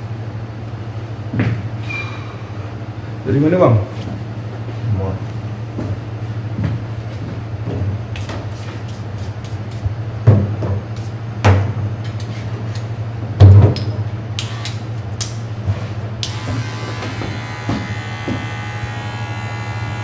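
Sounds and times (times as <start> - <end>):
steady low hum: 0.0 - 20.0
electric hair clippers buzzing: 16.2 - 20.0.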